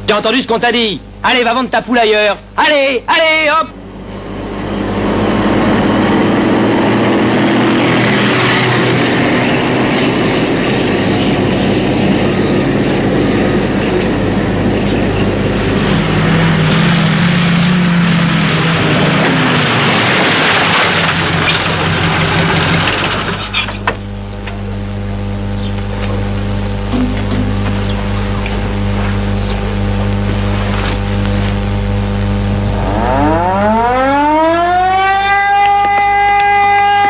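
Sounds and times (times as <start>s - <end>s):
low hum: 0.0s - 37.0s
heavy truck engines rumbling: 3.7s - 23.9s.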